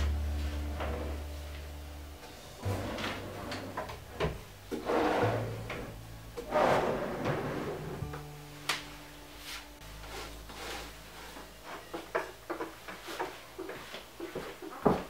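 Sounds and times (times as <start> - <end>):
wooden drawers sliding: 2.6 - 8.2.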